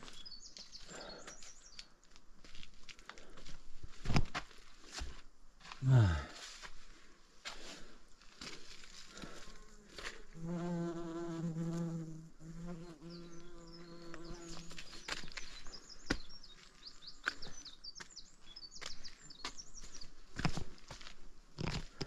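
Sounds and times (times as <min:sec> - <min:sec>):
flying insect buzzing: 0:09.6 - 0:14.8.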